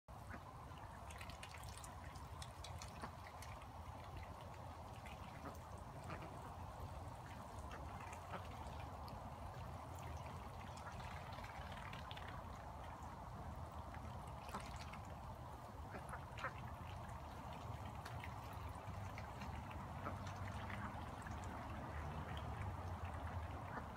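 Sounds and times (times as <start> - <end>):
ducks quacking softly: 0.1 - 23.9
ducks splashing in water: 0.1 - 23.9.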